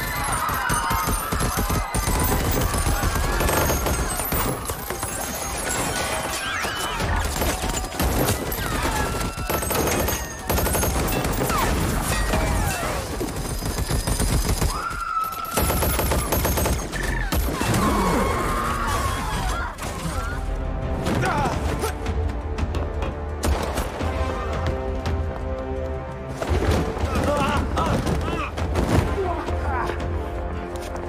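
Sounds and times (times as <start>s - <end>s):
rapid automatic gunfire: 0.0s - 6.3s, 7.0s - 12.1s, 13.0s - 14.9s, 15.5s - 17.4s
film music: 0.0s - 31.0s.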